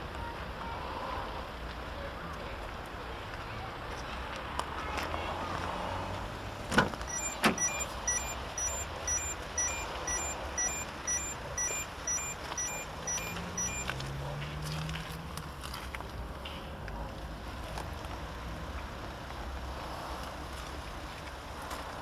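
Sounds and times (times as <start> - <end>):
car door unlatching and opening: 6.7 - 8.0
car door warning chime beeping: 7.0 - 14.0.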